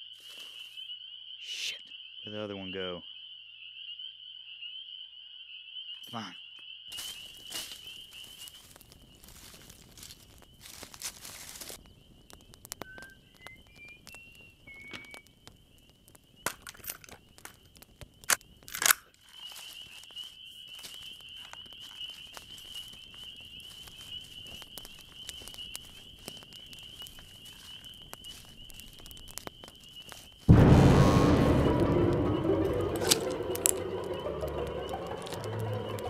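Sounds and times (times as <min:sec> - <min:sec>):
dry brush crunching underfoot: 0:06.9 - 0:11.8, 0:19.1 - 0:30.5
twigs snapping underfoot: 0:06.9 - 0:30.5.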